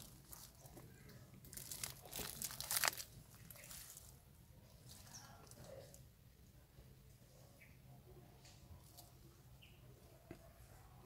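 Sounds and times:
faint soft noises: 0.0 - 11.0.

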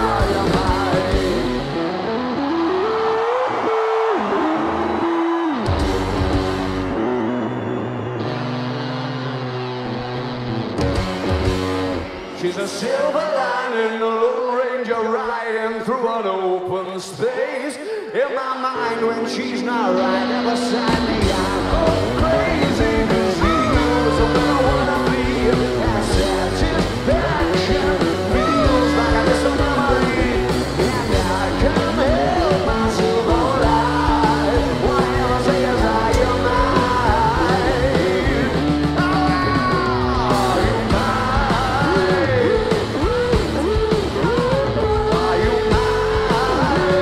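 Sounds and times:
person singing: 0.0 - 1.8, 16.7 - 47.0
live rock band playing: 0.0 - 13.9, 18.8 - 47.0.

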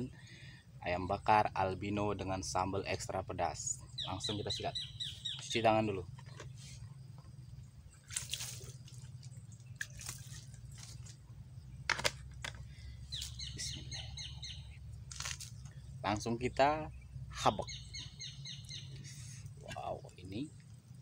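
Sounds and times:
birds chirping: 0.0 - 21.0
water splashing and dripping: 8.0 - 11.2.

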